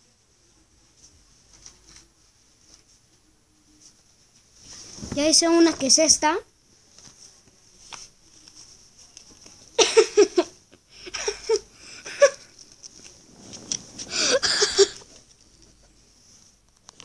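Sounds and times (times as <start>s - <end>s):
child laughing: 11.1s - 12.5s, 14.1s - 15.0s.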